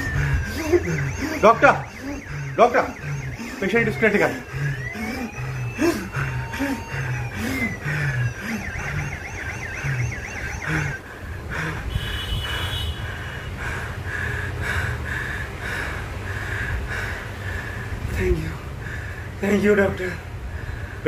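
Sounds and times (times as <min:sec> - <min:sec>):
electronic siren wail: 0:00.0 - 0:12.2.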